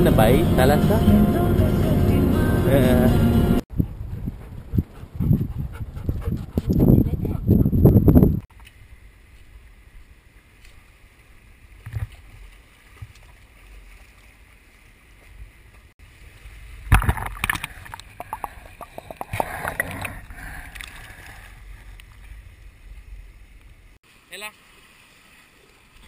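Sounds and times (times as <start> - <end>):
wind rumble on microphone: 3.7 - 10.2.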